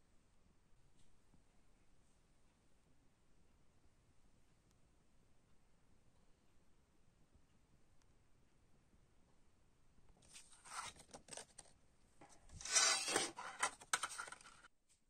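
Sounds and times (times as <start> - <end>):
paper booklet rustling: 10.2 - 14.7.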